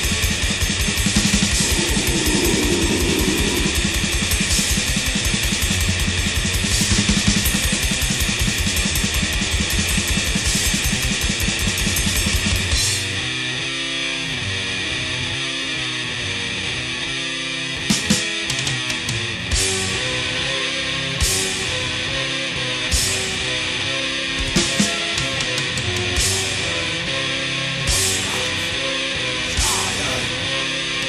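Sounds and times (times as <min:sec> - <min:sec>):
distorted guitars: 0:00.0 - 0:06.8
rapid drumming with cymbal crashes: 0:00.0 - 0:12.8.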